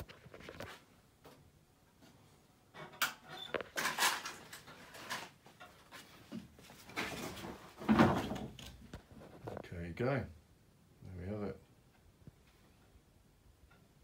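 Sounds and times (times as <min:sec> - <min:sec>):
objects knocking and rustling: 0:00.0 - 0:09.6.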